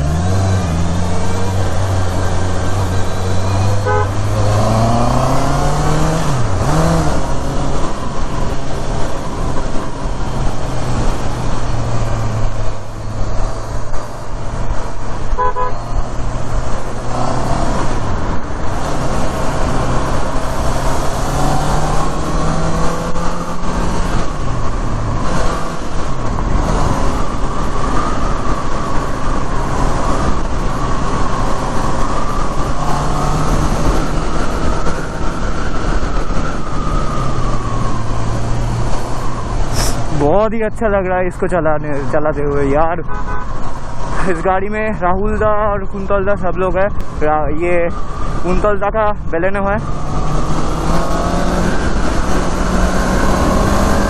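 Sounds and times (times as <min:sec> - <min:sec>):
motorcycle engine cruising: 0:00.0 - 0:44.4, 0:46.4 - 0:54.0
wind noise: 0:42.3 - 0:54.0.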